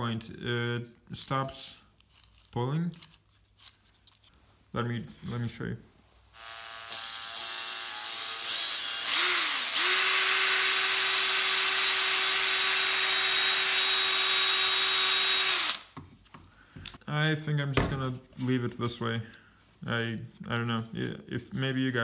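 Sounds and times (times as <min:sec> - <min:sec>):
electric drill whining: 0:06.4 - 0:15.9.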